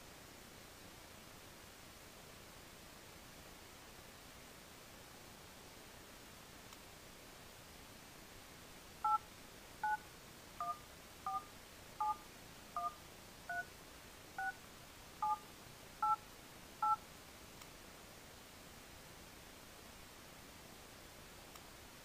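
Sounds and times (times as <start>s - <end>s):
touch-tone dialing beeps: 10.6s - 12.2s, 12.8s - 13.7s.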